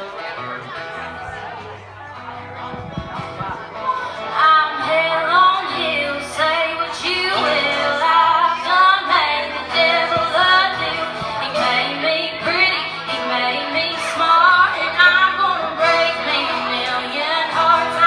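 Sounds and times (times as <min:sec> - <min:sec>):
woman singing into a microphone: 0:04.0 - 0:18.0.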